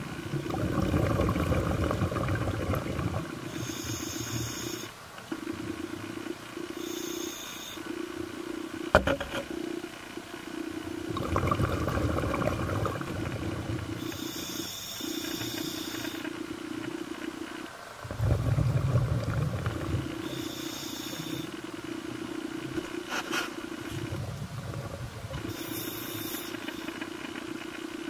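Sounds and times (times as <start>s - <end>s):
exhaled bubbles rumbling underwater: 0.0s - 6.9s, 9.6s - 23.0s, 23.7s - 26.3s
steady low hum: 0.0s - 28.0s
diver inhaling through regulator hiss: 3.4s - 5.0s, 6.7s - 7.9s, 13.5s - 16.4s, 20.0s - 21.6s, 25.4s - 27.0s.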